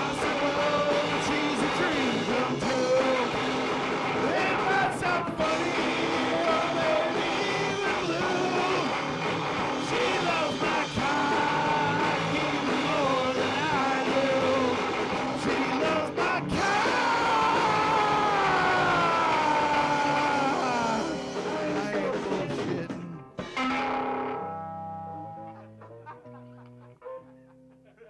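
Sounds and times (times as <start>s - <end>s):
person singing: 0.0s - 3.4s, 4.2s - 9.0s, 9.8s - 23.2s
guitar-driven rock music: 0.0s - 27.9s.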